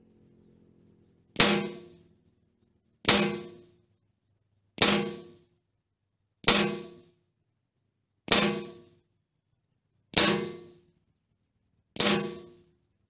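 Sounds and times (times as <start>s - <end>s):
rifle shots: 1.4s - 2.0s, 3.1s - 3.6s, 8.3s - 8.9s, 10.2s - 10.8s, 12.0s - 12.6s.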